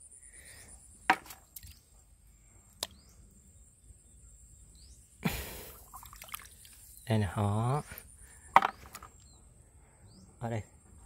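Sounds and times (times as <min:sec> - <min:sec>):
hand splashing river water: 0:05.3 - 0:06.9.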